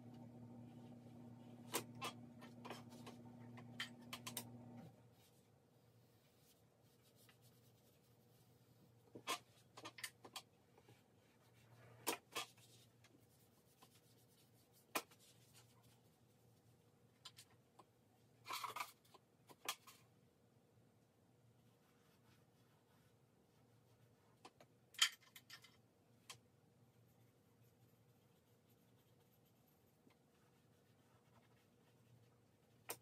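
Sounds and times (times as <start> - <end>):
charcoal scratching on paper: 11.2 - 16.2, 21.6 - 24.3, 27.0 - 33.0.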